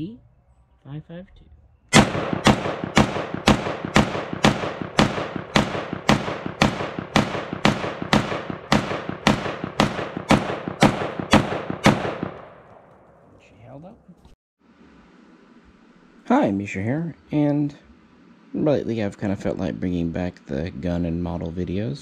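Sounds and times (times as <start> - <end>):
rifle shots with ringing tail: 1.9 - 13.2.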